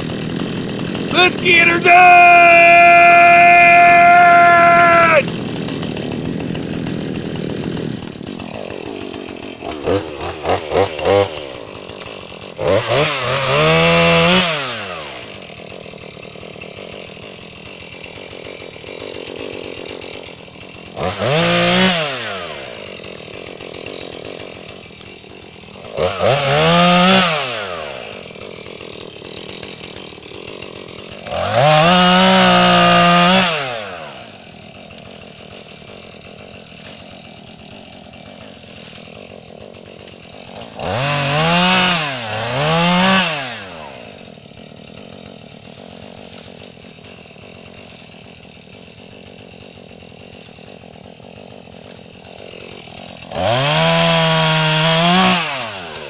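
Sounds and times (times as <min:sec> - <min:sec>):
chainsaw idling and revving: 0:00.0 - 0:56.0.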